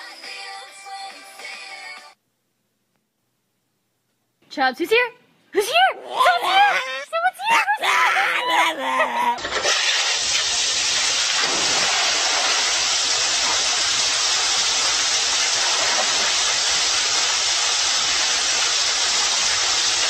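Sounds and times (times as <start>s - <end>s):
water rushing down waterslide: 9.4s - 20.0s
water splashing into pool: 9.4s - 20.0s.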